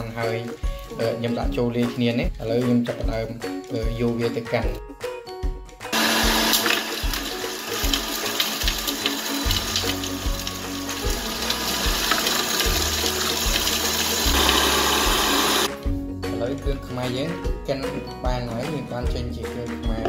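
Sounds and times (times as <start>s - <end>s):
food processor whirring: 5.9s - 15.7s.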